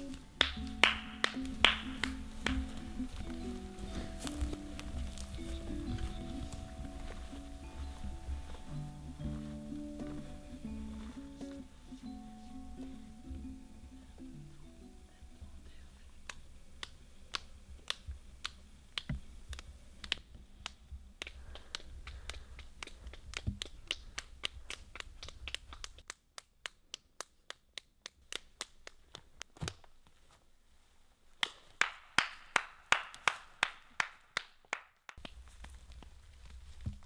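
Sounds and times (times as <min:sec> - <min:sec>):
person clapping: 0:00.0 - 0:07.4, 0:16.2 - 0:29.8, 0:31.4 - 0:35.4.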